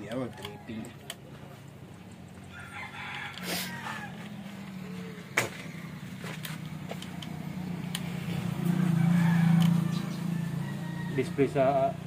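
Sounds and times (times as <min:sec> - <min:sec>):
handling clicks and ticks: 0:00.0 - 0:01.3, 0:06.3 - 0:08.8, 0:09.4 - 0:09.9
low engine hum: 0:03.8 - 0:12.0.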